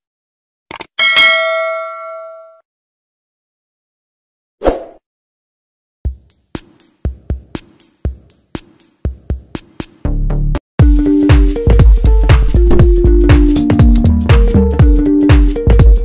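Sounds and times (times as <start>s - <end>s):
drum-machine beat: 6.1s - 16.0s
sudden electronic hit: 12.4s - 13.1s.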